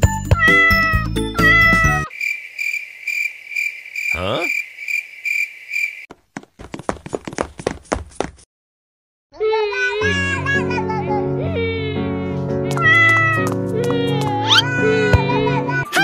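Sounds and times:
cartoon cat meowing: 0:00.3 - 0:02.1, 0:12.7 - 0:13.4, 0:14.0 - 0:15.0
pulsing cricket-like chirp: 0:02.1 - 0:06.1.

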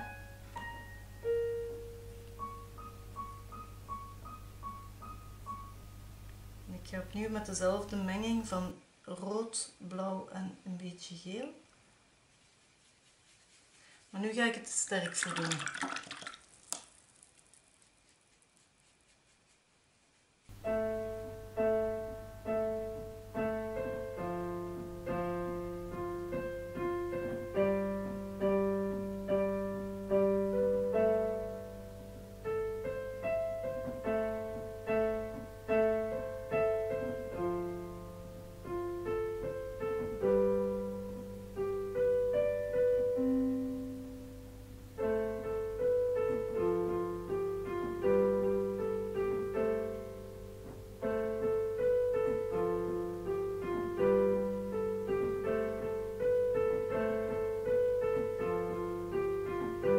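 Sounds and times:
slow solo piano: 0:00.0 - 0:08.0, 0:20.5 - 0:59.9
steady low hum: 0:00.0 - 0:14.8, 0:16.9 - 0:59.9.

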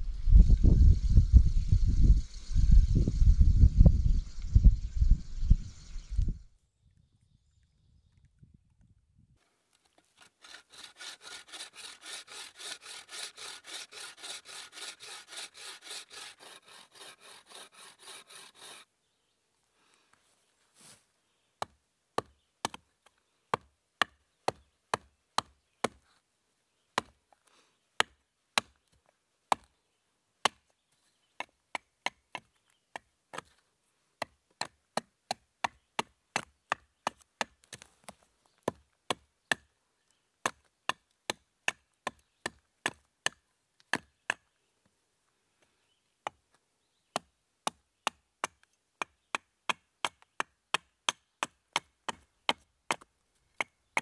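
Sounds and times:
hatchet chopping wood: 0:21.6 - 0:22.8, 0:23.5 - 0:26.0, 0:27.0 - 0:27.2, 0:28.0 - 0:28.8, 0:29.5 - 0:29.7, 0:30.4 - 0:30.6, 0:34.2 - 0:37.9, 0:38.6 - 0:39.7, 0:40.4 - 0:44.4, 0:47.2 - 0:54.0.

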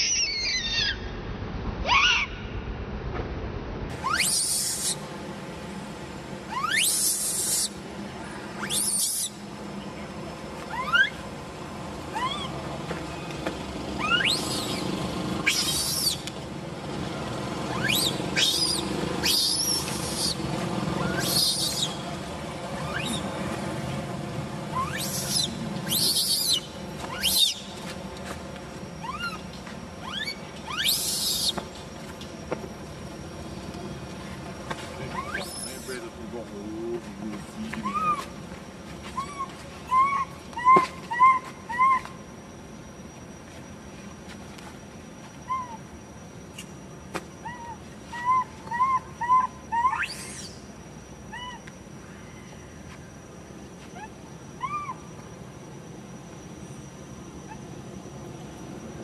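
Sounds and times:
baby monkey crying: 0:00.0 - 0:01.1, 0:04.0 - 0:05.0, 0:06.5 - 0:07.8, 0:08.6 - 0:09.4, 0:10.7 - 0:11.2, 0:12.1 - 0:12.6, 0:14.0 - 0:14.8, 0:15.4 - 0:16.2, 0:17.7 - 0:20.4, 0:21.0 - 0:22.0, 0:22.8 - 0:23.2, 0:24.7 - 0:27.6, 0:29.0 - 0:29.4, 0:30.0 - 0:31.6, 0:35.1 - 0:35.9, 0:37.8 - 0:38.3, 0:39.2 - 0:42.1, 0:47.4 - 0:50.6, 0:51.3 - 0:51.7, 0:54.0 - 0:55.1
sharp rising squeal: 0:00.0 - 0:02.9, 0:03.9 - 0:05.1, 0:06.4 - 0:07.8, 0:13.9 - 0:16.3, 0:17.6 - 0:23.5, 0:24.5 - 0:27.8, 0:28.8 - 0:31.6, 0:35.0 - 0:36.3, 0:47.4 - 0:58.1.

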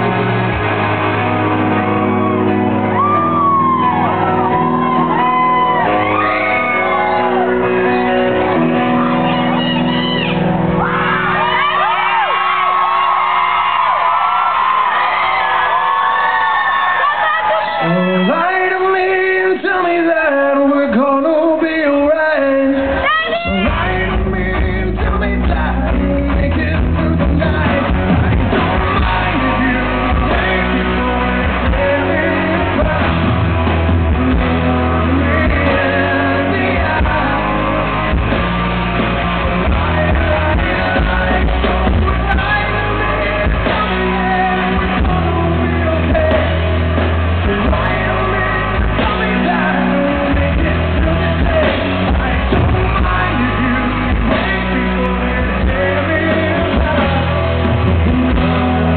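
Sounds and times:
electric guitars: 0:00.0 - 0:58.9
live rock band playing: 0:00.0 - 0:58.9
man singing: 0:17.8 - 0:58.9.

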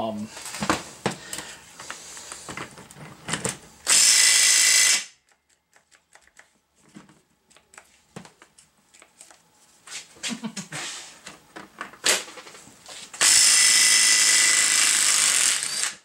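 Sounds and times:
impact wrench burst: 0:03.8 - 0:05.2, 0:13.2 - 0:16.0.

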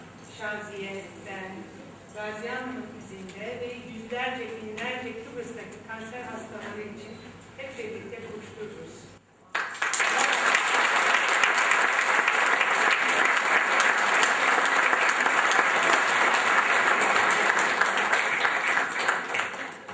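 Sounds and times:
audience applauding: 0:09.5 - 0:19.9.

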